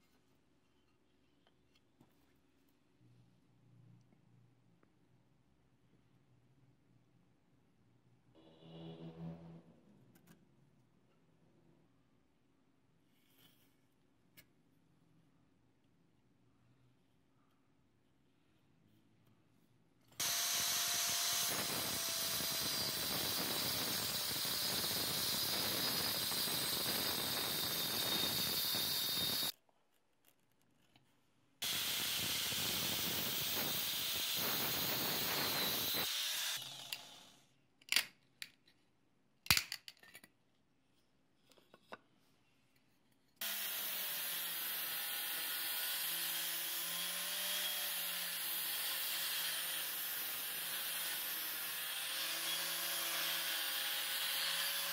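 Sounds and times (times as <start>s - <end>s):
angle grinder cutting wood: 20.2s - 29.5s, 31.6s - 37.4s, 43.4s - 54.9s
grinder sanding wood: 20.2s - 29.5s, 31.6s - 36.6s.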